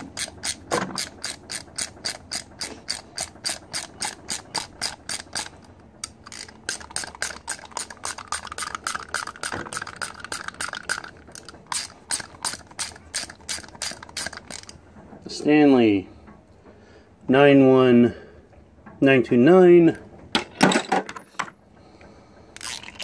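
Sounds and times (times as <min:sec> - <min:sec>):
hand ratchet clicking: 0:00.0 - 0:14.8.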